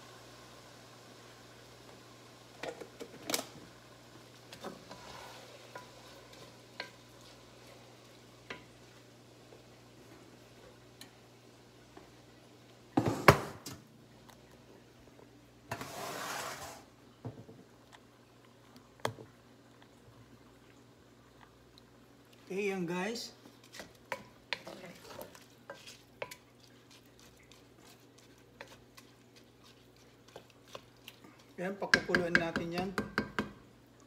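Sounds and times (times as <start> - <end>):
faint steady hum: 0.0 - 34.0
wooden spoon knocking cookware: 31.8 - 33.6.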